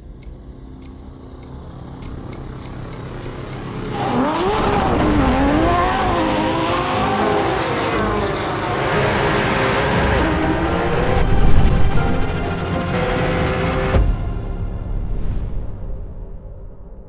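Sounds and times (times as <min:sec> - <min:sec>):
race car engines revving: 0:01.3 - 0:14.0.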